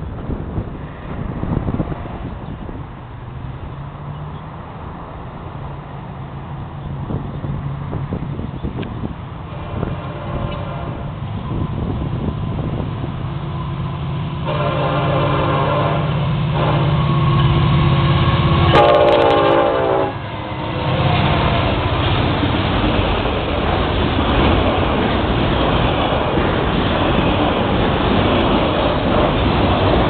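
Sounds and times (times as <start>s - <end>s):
train horn blasts: 9.5s - 11.2s, 14.4s - 21.8s.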